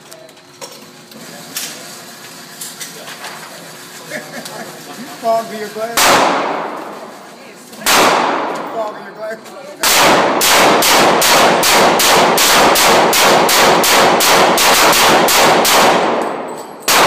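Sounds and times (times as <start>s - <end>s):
pistol shots ringing indoors: 6.0s - 7.0s, 7.8s - 8.8s, 9.8s - 17.0s.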